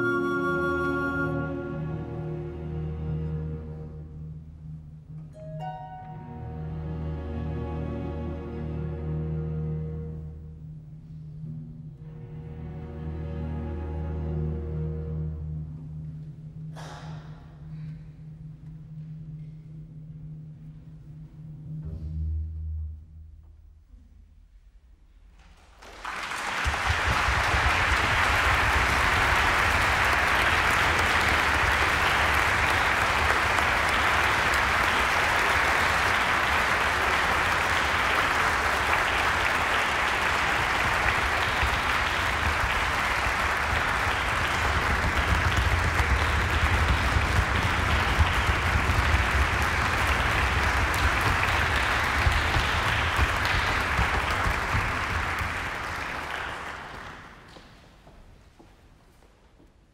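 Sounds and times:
audience applauding: 25.6 - 57.6.

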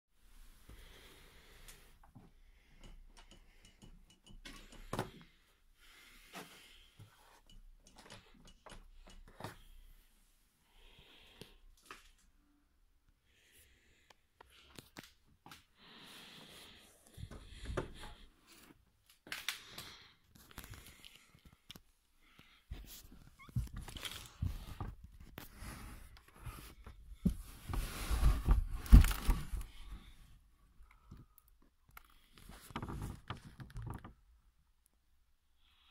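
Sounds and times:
faint clicks and taps on a handle: 2.0 - 5.1.

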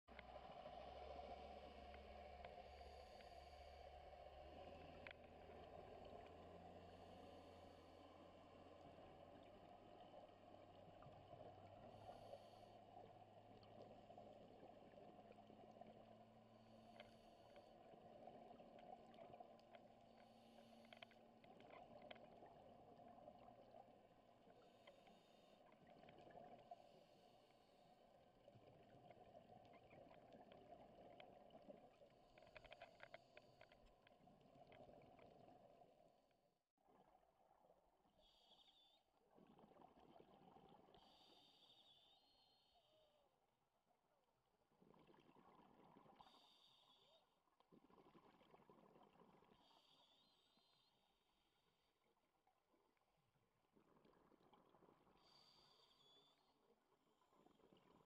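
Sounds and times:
faint clicks: 4.9 - 6.4, 16.8 - 22.5, 28.6 - 35.4.

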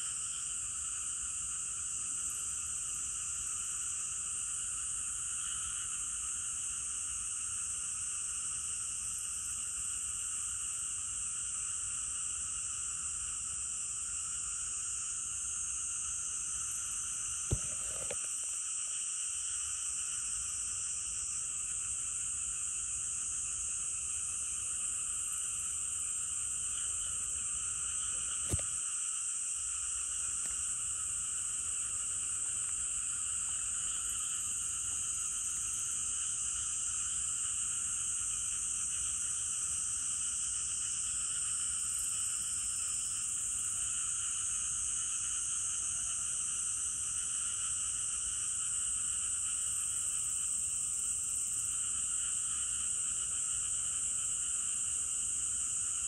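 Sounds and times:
chorus of calling insects: 0.0 - 56.0.

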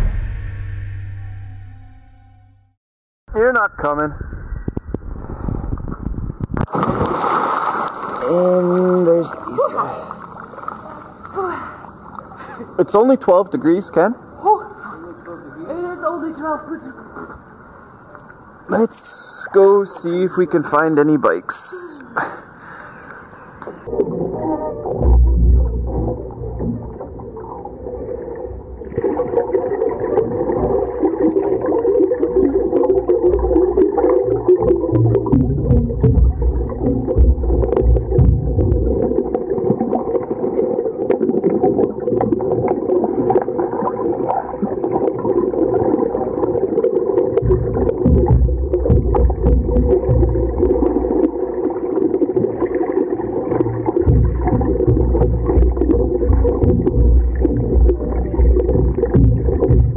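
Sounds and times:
muffled underwater rumble: 4.1 - 7.0, 23.8 - 59.9
bubbling and crackling: 4.3 - 12.5, 22.9 - 59.9.

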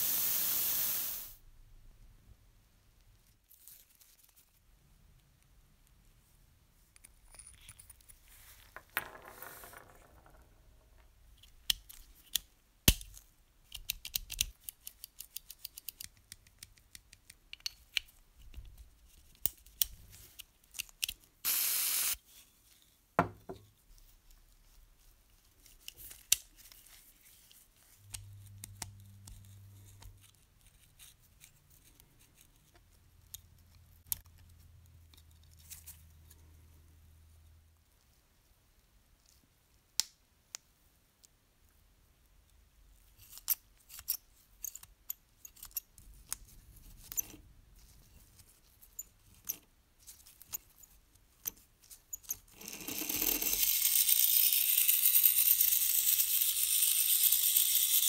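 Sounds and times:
spray lubricant hiss: 0.0 - 1.4, 21.5 - 22.2.

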